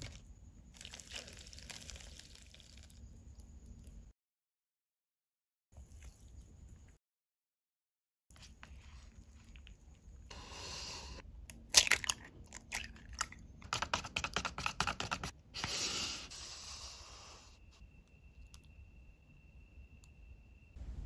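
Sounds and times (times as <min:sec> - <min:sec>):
shell crackling apart: 0:11.5 - 0:13.3
egg shell cracking: 0:11.5 - 0:15.2.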